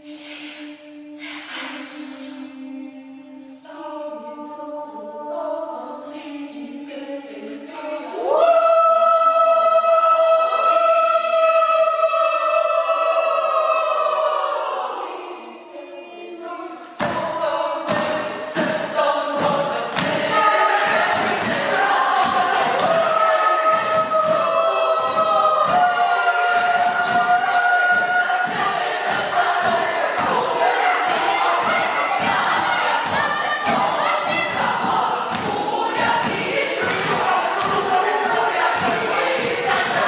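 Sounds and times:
short hissing sounds: 0.0 - 2.6
choir singing a cappella: 0.0 - 40.0.

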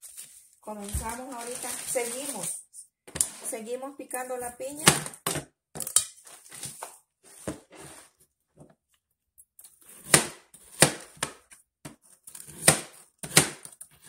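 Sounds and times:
knife chopping on plastic board: 9.9 - 13.8.

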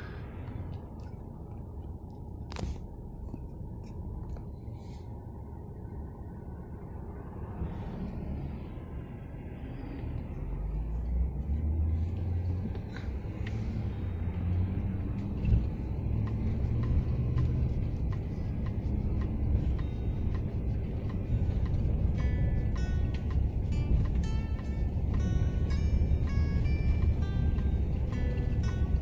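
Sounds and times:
car engine and tyre rumble: 0.0 - 29.0
music: 16.7 - 29.0.

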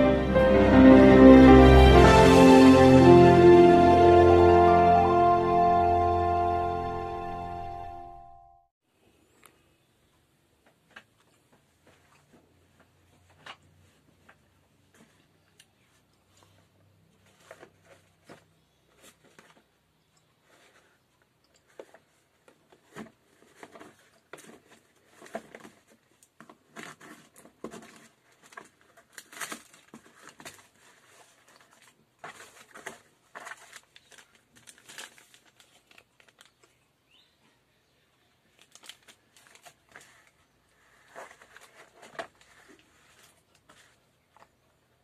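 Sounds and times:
packaging crinkling and rustling: 21.6 - 36.8, 38.5 - 44.4.

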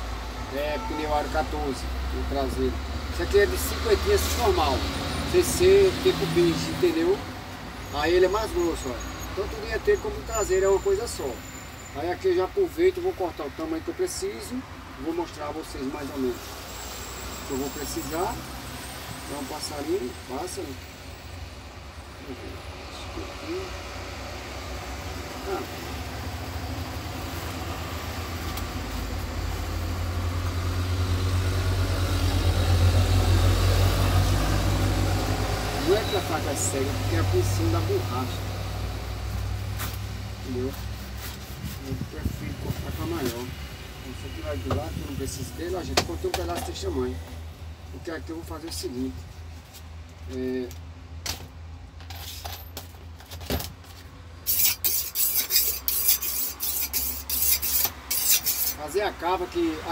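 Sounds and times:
knife scraping on whetstone: 54.4 - 58.8.

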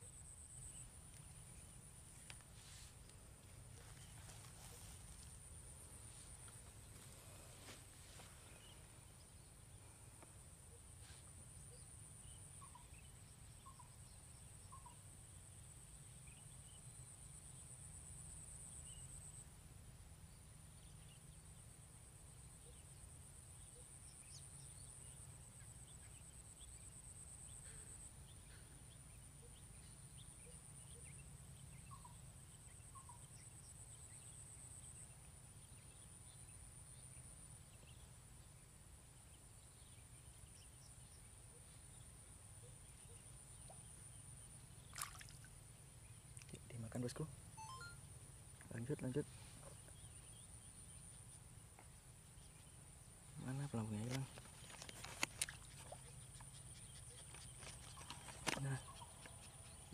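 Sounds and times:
short chirps: 47.6 - 48.0.

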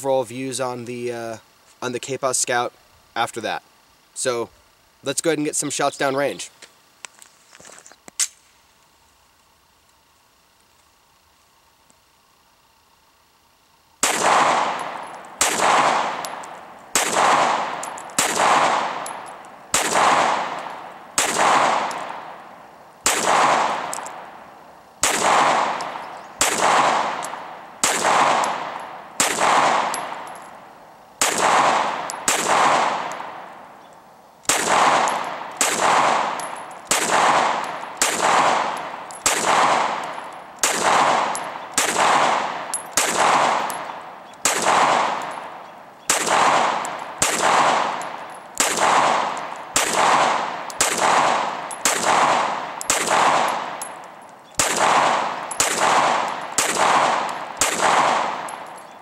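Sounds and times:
gunshots with long echo: 14.0 - 33.7, 34.5 - 54.0, 54.6 - 58.8.

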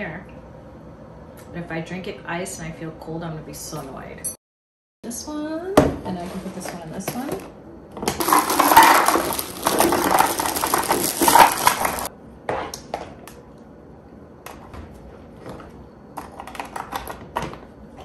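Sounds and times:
cookies tipped into canister: 8.1 - 12.1
plastic bag crinkling: 8.2 - 12.1.

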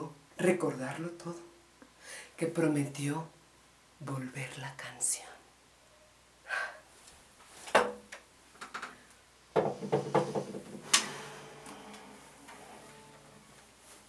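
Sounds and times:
guitar being handled: 9.6 - 14.0
guitar strings ringing: 10.8 - 13.7.

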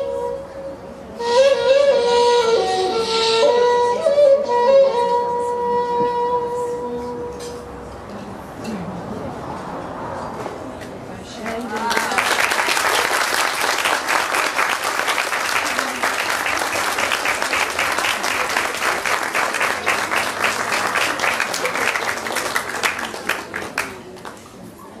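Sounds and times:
small audience applauding: 11.4 - 24.5.

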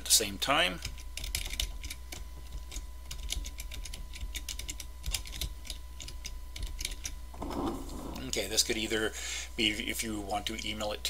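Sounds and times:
faint electrical hum: 0.0 - 11.0
keyboard typing: 0.8 - 8.3.

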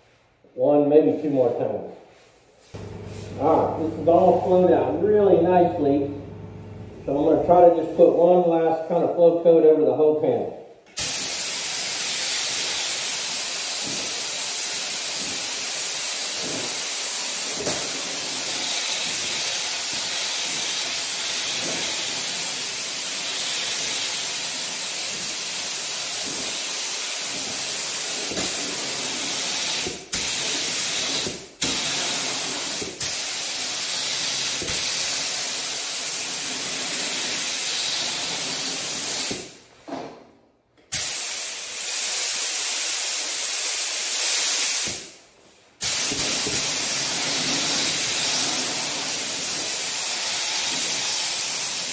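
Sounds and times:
spray gun hissing: 11.0 - 39.5, 40.9 - 45.1, 45.8 - 51.9.

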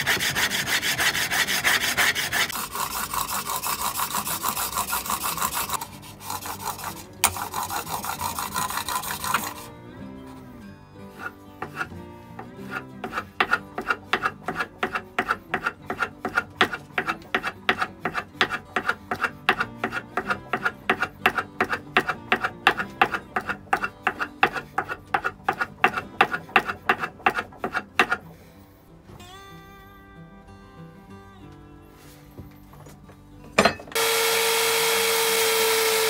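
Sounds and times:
blade rubbing on sharpening stone: 0.0 - 9.7, 11.1 - 28.3
soft background music: 0.0 - 34.0.

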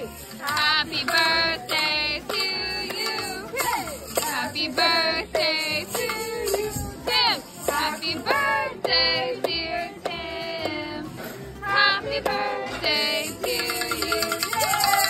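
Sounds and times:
high voices singing a celebration song: 0.0 - 15.0
musical backing: 0.0 - 15.0.

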